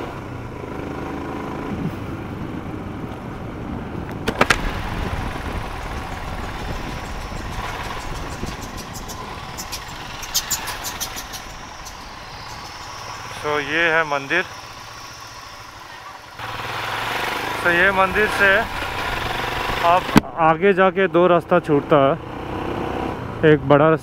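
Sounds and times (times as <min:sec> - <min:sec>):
motorcycle engine running: 0:00.0 - 0:20.2
road noise: 0:00.0 - 0:24.0
patter of clicks: 0:07.4 - 0:12.0.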